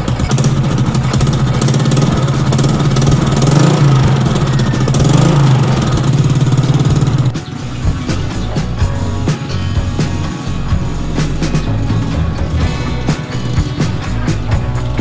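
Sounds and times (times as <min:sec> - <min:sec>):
motorcycle engine idling: 0:00.0 - 0:15.0.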